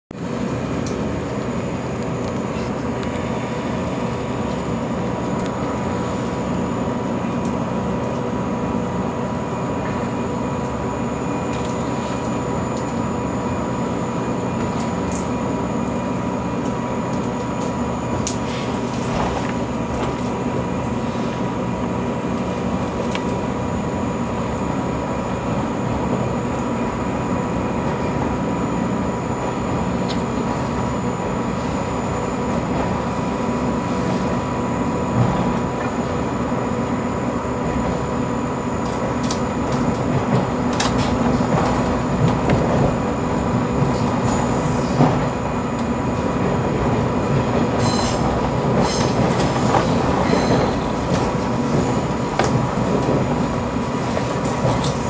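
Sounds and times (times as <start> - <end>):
train rumbling: 0.1 - 55.0.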